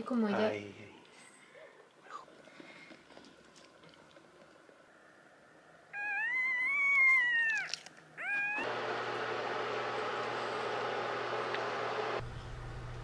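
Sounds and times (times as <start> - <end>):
puppy crying: 5.9 - 8.7
puppy squeak: 6.0 - 8.6.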